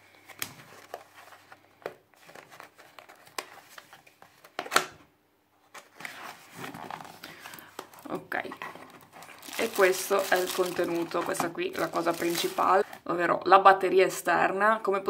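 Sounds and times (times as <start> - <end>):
soft cardboard rustle: 0.1 - 4.6, 5.6 - 13.0.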